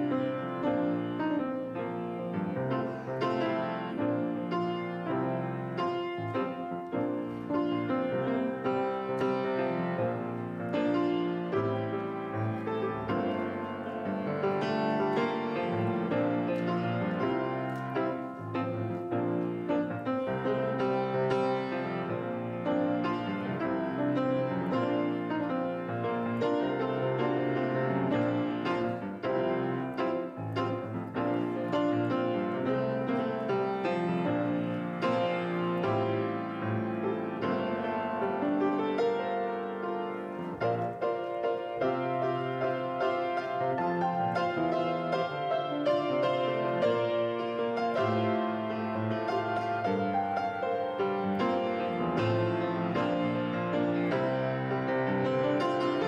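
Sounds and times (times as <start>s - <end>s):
grand piano playing: 0.0s - 56.0s.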